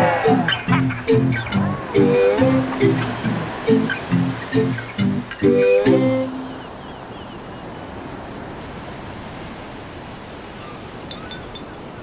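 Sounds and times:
sea surf washing in: 0:00.0 - 0:11.1.

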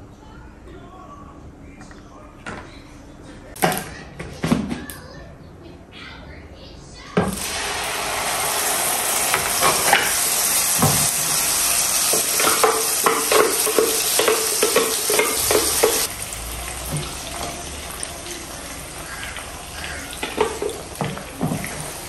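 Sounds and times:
paste sizzling in hot oil: 0:07.3 - 0:22.0
jug knocking against pan: 0:12.1 - 0:16.1.

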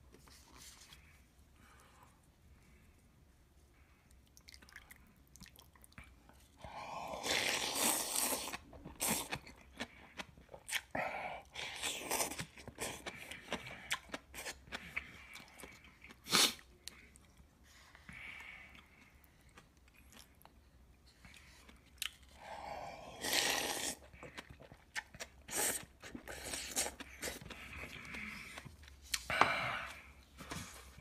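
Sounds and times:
wet chewing and crunching: 0:07.2 - 0:17.5, 0:23.2 - 0:29.3
loud noodle slurp: 0:23.2 - 0:24.0.

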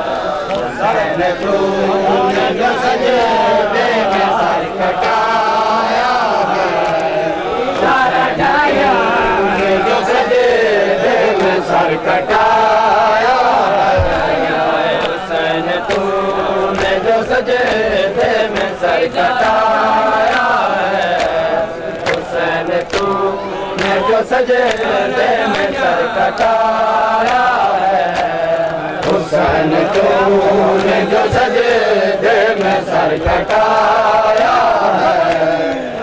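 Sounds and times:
men chanting: 0:00.0 - 0:36.0
hands slapping bare chests: 0:15.8 - 0:23.2, 0:23.8 - 0:26.6, 0:27.2 - 0:30.2.

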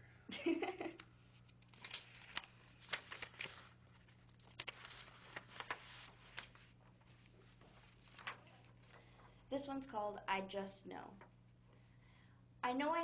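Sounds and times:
faint low hum: 0:00.0 - 0:13.0
paper rustling: 0:01.2 - 0:09.4.

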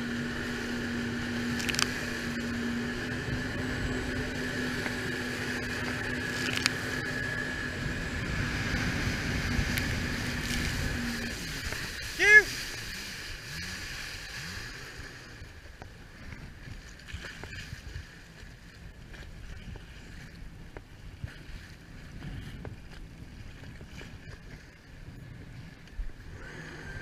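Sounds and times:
wind and spray rushing: 0:00.0 - 0:18.2
jet ski engine rumble: 0:00.0 - 0:27.0.

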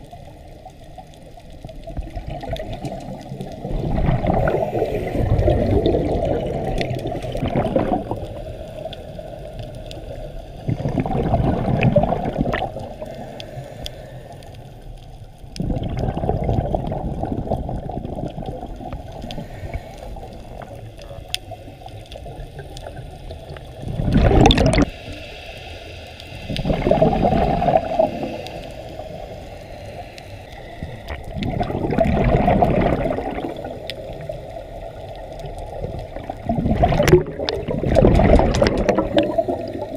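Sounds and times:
diver's bubbles gurgling underwater: 0:00.0 - 0:13.2, 0:15.4 - 0:25.0, 0:26.5 - 0:28.5, 0:30.8 - 0:39.9
low rush of water: 0:01.8 - 0:08.9, 0:23.8 - 0:39.9.

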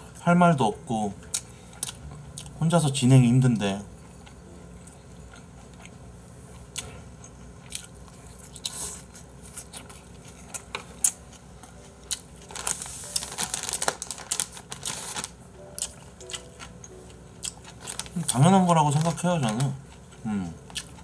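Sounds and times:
person chewing: 0:01.2 - 0:02.6, 0:04.0 - 0:13.8, 0:14.5 - 0:18.4, 0:19.8 - 0:21.0.

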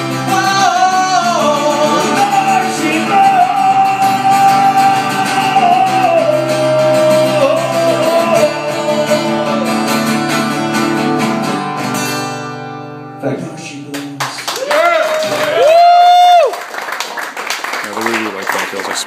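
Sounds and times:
strummed acoustic guitar: 0:00.0 - 0:13.8
man singing long held note: 0:00.4 - 0:09.8.

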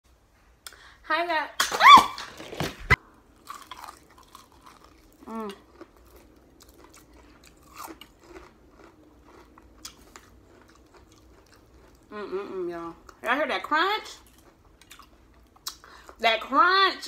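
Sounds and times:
crunchy chewing: 0:03.4 - 0:12.1, 0:14.2 - 0:16.2.

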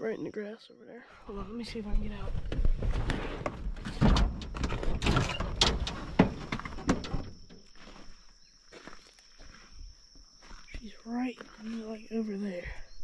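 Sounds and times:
truck door clicks and clunks: 0:03.8 - 0:07.6.

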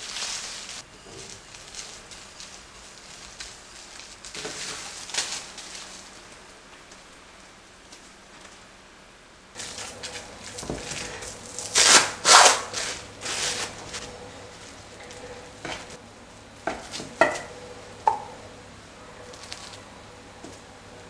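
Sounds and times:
plastic cling wrap crinkling: 0:00.0 - 0:08.7, 0:09.6 - 0:16.0, 0:19.2 - 0:19.9
bench scraper cutting dough: 0:11.8 - 0:13.7.

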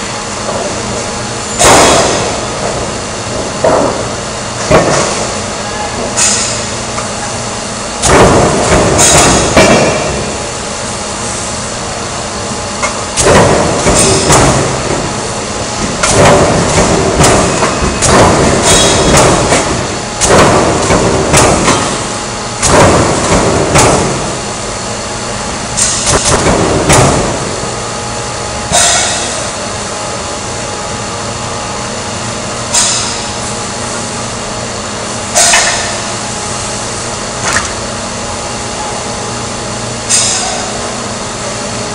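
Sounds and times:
loud clanking bang: 0:01.6 - 0:05.4, 0:08.0 - 0:10.4, 0:13.2 - 0:15.2, 0:15.8 - 0:24.4
metal shear running: 0:12.8 - 0:24.8.

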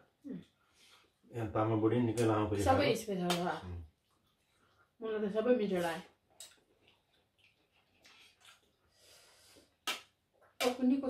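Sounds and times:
breathing: 0:00.6 - 0:01.2, 0:08.1 - 0:09.8
person chewing: 0:04.0 - 0:04.9, 0:06.3 - 0:10.6.

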